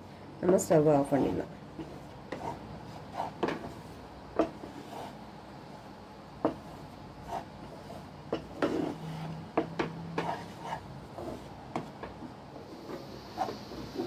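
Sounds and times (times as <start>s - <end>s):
wooden spatula scraping metal pan: 0.5s - 5.2s, 6.4s - 11.9s.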